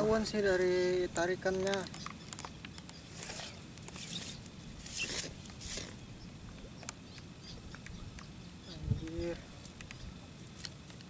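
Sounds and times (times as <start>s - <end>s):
rustling swishes: 3.1s - 6.0s.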